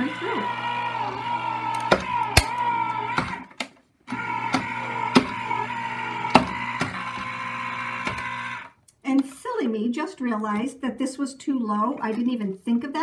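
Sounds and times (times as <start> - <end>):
die-cutting machine motor whine: 0.0 - 3.5, 4.1 - 8.7.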